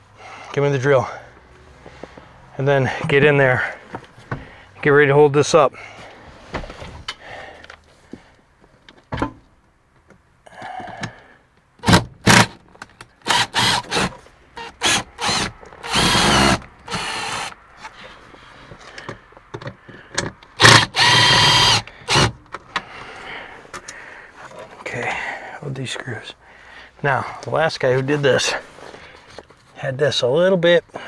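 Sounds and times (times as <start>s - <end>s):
cordless drill driving screws: 13.2s - 17.6s, 20.6s - 22.3s.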